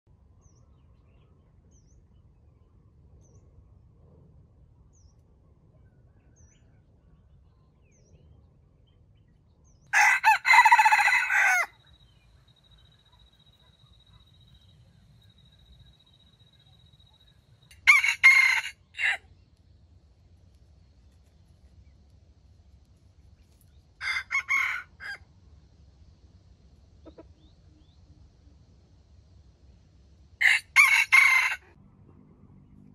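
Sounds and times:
rooster crowing: 9.9 - 12.1, 17.7 - 19.2, 24.0 - 25.2, 30.4 - 31.8.

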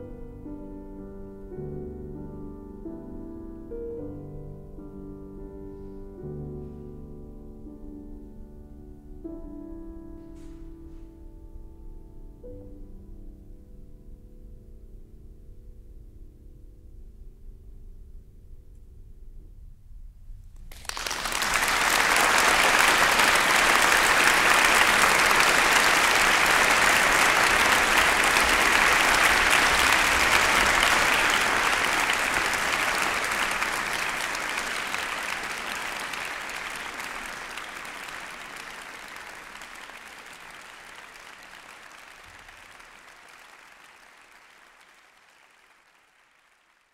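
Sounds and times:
large crowd applauding: 20.7 - 46.9.

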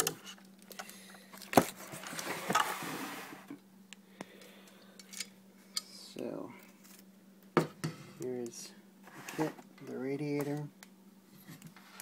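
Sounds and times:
steady low hum: 0.0 - 12.0
packaging rustling and scraping: 1.3 - 3.5.

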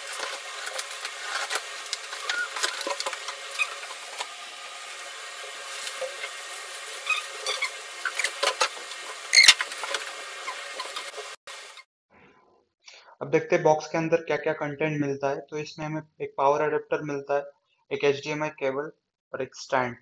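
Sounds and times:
cardboard and plastic rustling: 0.0 - 4.4.

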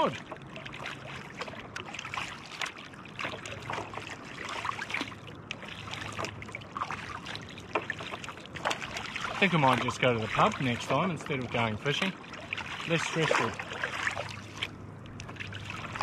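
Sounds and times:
kayak paddle strokes: 0.0 - 16.0
water dripping off paddle: 0.0 - 16.0.

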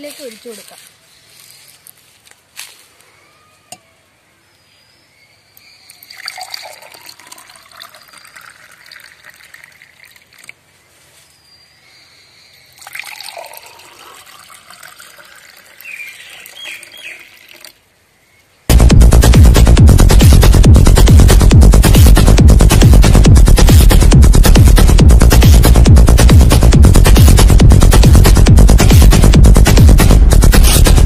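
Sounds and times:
juice pouring into glass: 5.8 - 10.5, 12.8 - 17.8
loud electronic music: 18.7 - 31.0.

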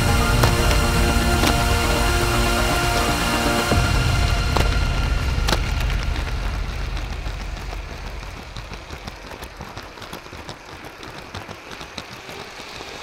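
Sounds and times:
low rumble: 0.0 - 10.3
toy train wheels clicking on track: 7.0 - 13.0.

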